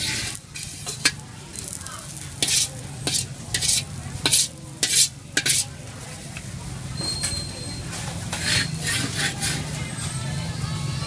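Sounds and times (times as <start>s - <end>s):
sizzling in hot pan: 0.0s - 5.6s
wok being stirred and scraped: 0.0s - 10.4s.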